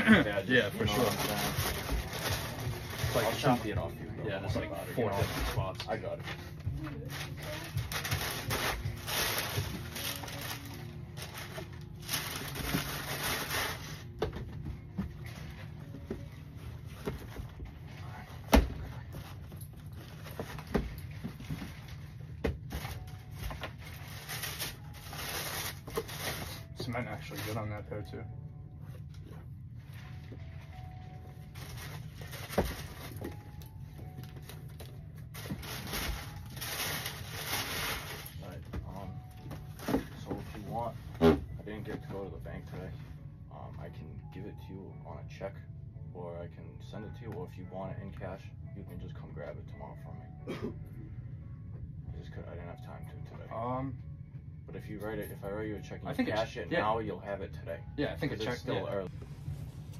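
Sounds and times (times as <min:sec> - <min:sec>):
low steady hum: 0:00.0 - 0:59.9
paper rustling and crinkling: 0:00.7 - 0:03.8, 0:05.0 - 0:14.2, 0:19.0 - 0:27.8, 0:29.9 - 0:41.4.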